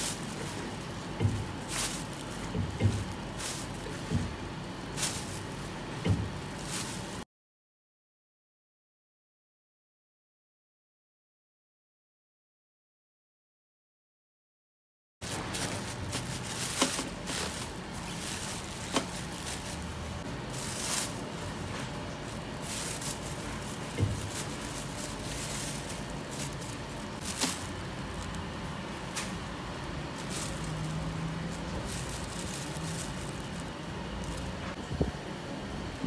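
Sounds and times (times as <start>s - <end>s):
sharp crackles and knocks: 0.0s - 7.2s, 15.2s - 34.9s
steady background noise: 0.0s - 7.2s, 15.2s - 36.0s
plastic bags rustling: 0.0s - 7.3s, 15.2s - 35.0s.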